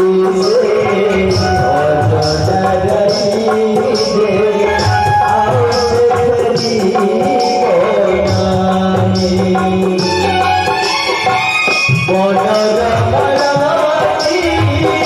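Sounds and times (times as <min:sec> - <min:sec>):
person singing wavering melody: 0:00.0 - 0:11.2
drums: 0:00.0 - 0:15.0
high percussive stroke: 0:00.4 - 0:12.0.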